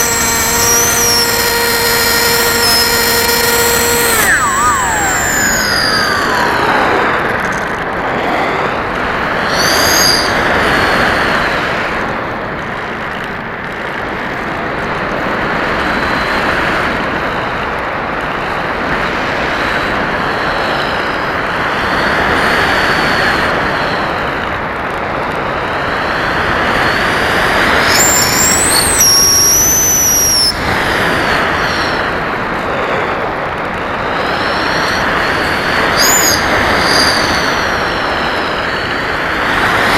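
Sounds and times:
airflow rushing: 0.0 - 12.1
electric motor and propeller whine: 0.0 - 39.9.

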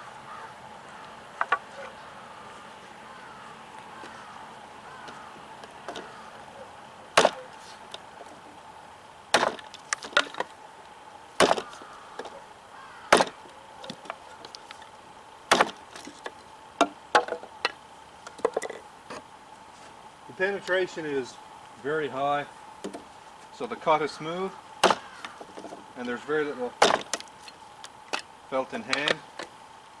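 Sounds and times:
knife chopping wood on block: 7.2 - 7.5, 9.4 - 10.5, 11.4 - 12.3, 13.1 - 14.2, 15.5 - 15.8, 24.8 - 25.8, 26.8 - 27.2.

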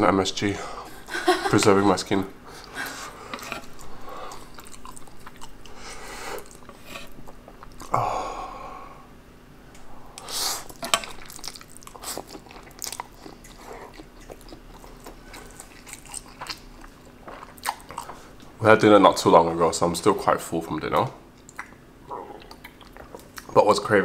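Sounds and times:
wet chewing and mouth smacks: 3.3 - 5.8, 6.4 - 7.9, 10.7 - 18.5, 21.3 - 23.6.

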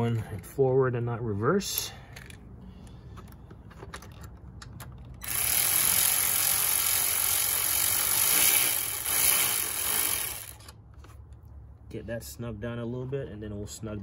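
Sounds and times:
ratchet clicking: 5.1 - 10.8.

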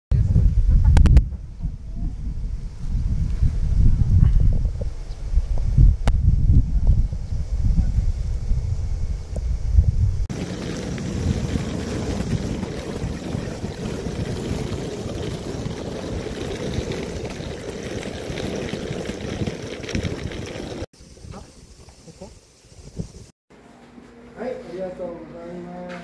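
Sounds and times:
suitcase wheels rolling on asphalt: 10.3 - 20.9.

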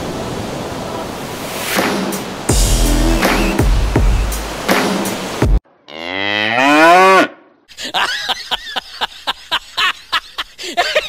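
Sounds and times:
cow mooing: 5.8 - 7.4.

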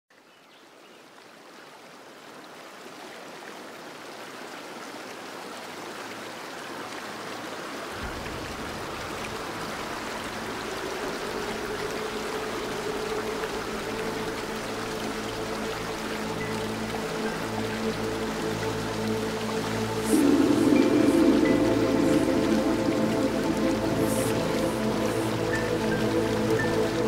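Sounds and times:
river water rushing: 1.1 - 27.0
steady humming tone: 10.3 - 27.0
deep rumble: 19.0 - 27.0.

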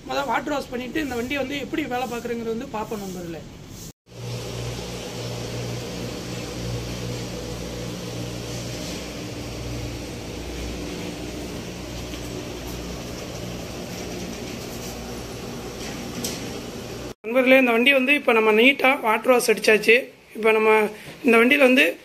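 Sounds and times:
machine humming: 4.1 - 17.2.

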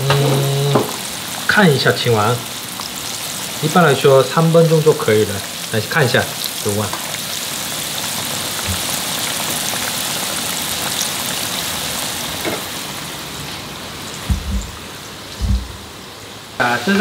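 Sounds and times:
chicken deep-frying in oil: 0.0 - 17.0
low bumps: 14.2 - 16.0.

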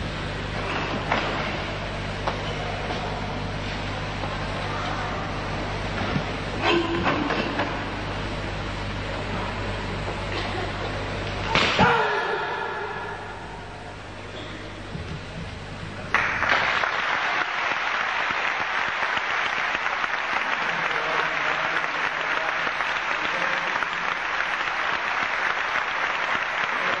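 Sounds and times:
audience applauding: 16.1 - 27.0.

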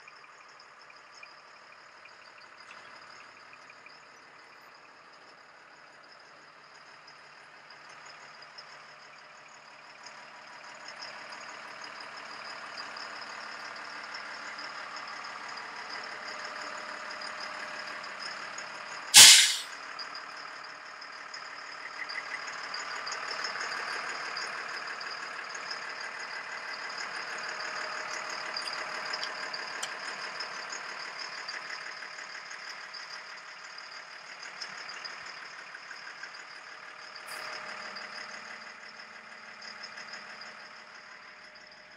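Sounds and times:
diesel engine idling: 0.3 - 41.9
sudden loud air hiss: 19.2 - 19.7.

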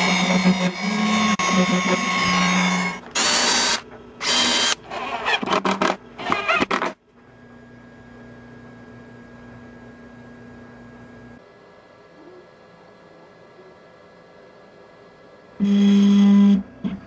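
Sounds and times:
router spindle cutting wood: 0.0 - 4.8.

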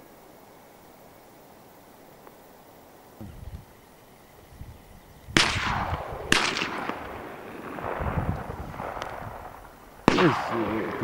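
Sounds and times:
shotgun shots with rolling echo: 5.4 - 11.0.

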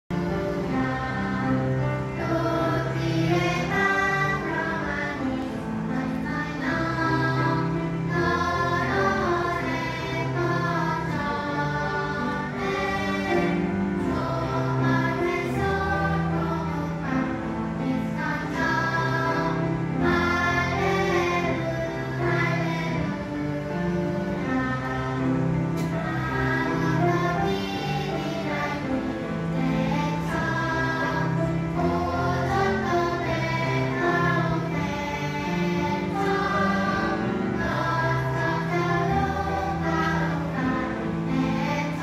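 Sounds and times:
instrumental accompaniment: 0.1 - 42.0
group singing a gospel song: 0.7 - 5.5, 6.2 - 17.3, 29.6 - 42.0.

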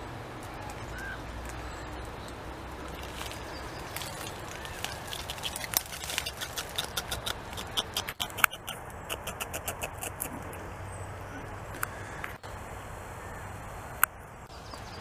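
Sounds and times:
beaver chewing bark: 1.5 - 10.7.

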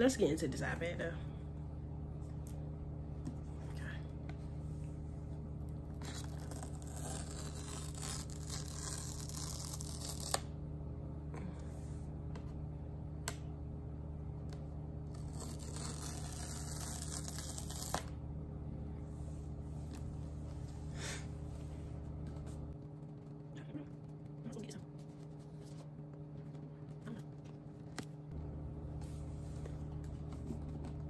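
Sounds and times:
low hum: 0.0 - 31.0
paper strip tearing: 6.0 - 10.5, 15.1 - 18.1.

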